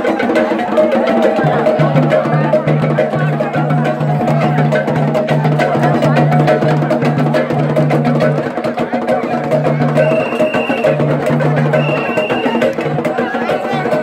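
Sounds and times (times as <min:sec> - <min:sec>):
crowd voices: 0:00.0 - 0:14.0
drums: 0:00.0 - 0:14.0
high whistle-like tone: 0:10.0 - 0:11.0, 0:11.8 - 0:12.6.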